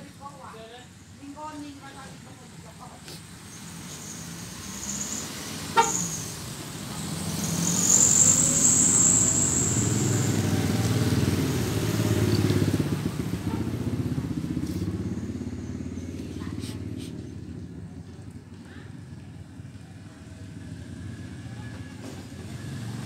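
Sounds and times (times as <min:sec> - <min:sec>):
vehicles passing close by: 0:00.0 - 0:23.0
short sharp horn toot: 0:05.8 - 0:06.2.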